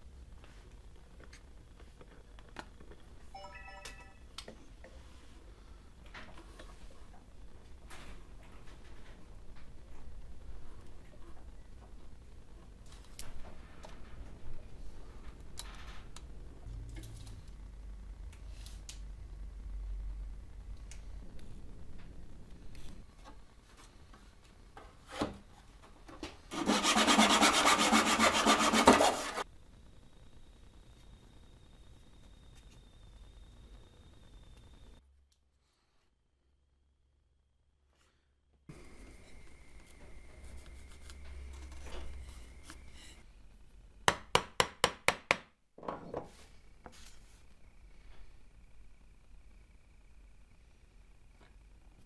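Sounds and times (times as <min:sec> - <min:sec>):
chisel scraping wood: 0:26.5 - 0:29.4
hand saw cutting wood: 0:26.5 - 0:29.4
pencil scratching: 0:26.5 - 0:29.4.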